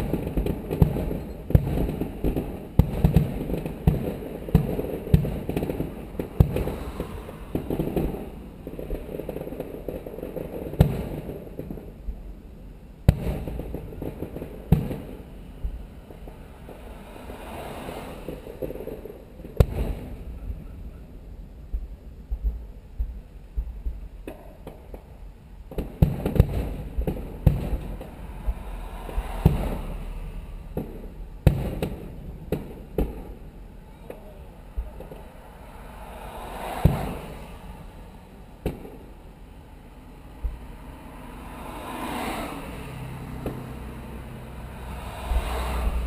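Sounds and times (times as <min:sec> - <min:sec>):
distant fireworks bangs: 0:00.0 - 0:12.3, 0:13.0 - 0:46.0
low rumble: 0:20.1 - 0:24.2, 0:26.8 - 0:31.5.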